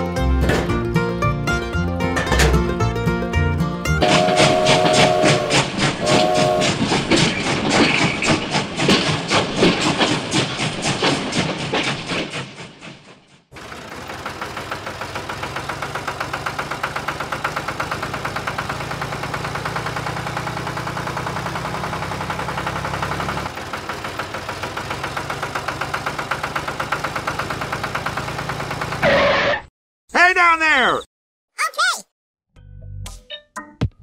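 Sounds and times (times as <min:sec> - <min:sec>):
tractor engine chugging: 0:04.0 - 0:12.9, 0:13.5 - 0:29.1.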